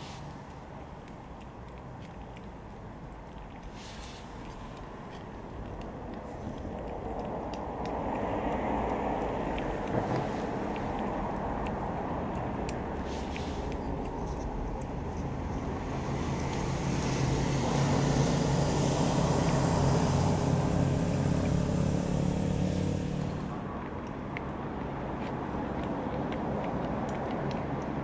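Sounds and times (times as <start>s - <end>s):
street traffic rumble: 0.0s - 28.0s
vehicle driving past: 6.3s - 23.9s.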